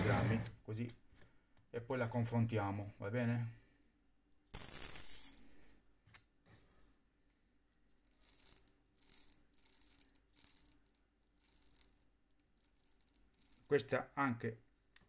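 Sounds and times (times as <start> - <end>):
lead pellets rattling: 4.4 - 5.5, 8.0 - 13.8.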